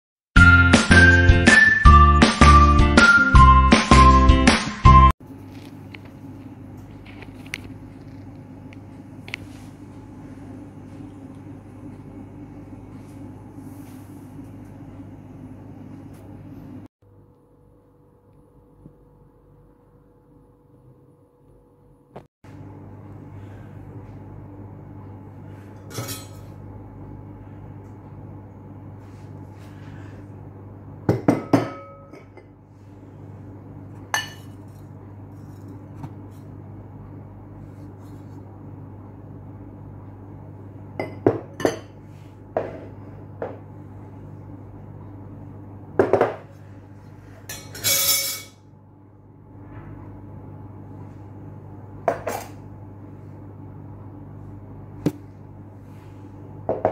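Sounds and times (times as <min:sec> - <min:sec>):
steady low hum: 0:05.2 - 0:56.9
glass bowls clinking: 0:25.9 - 0:26.5, 0:31.2 - 0:32.5, 0:34.1 - 0:34.8, 0:47.5 - 0:48.6.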